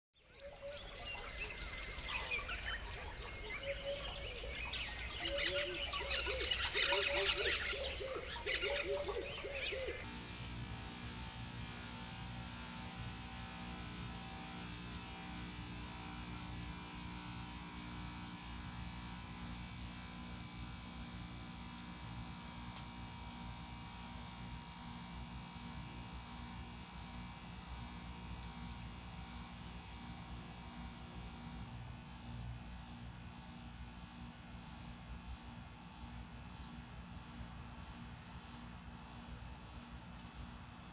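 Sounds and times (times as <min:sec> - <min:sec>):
small birds chirping: 0:00.2 - 0:10.0
steady hum with buzz: 0:00.2 - 0:40.9.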